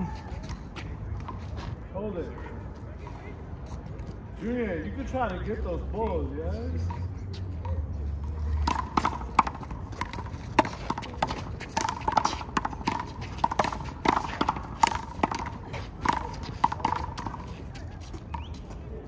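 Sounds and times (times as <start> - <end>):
handball smacks and bounces: 8.6 - 17.5.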